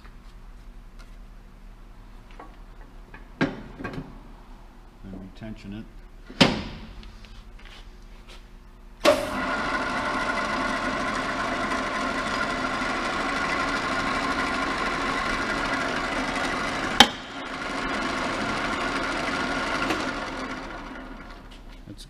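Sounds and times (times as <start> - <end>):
lathe motor whirring: 9.0 - 21.7.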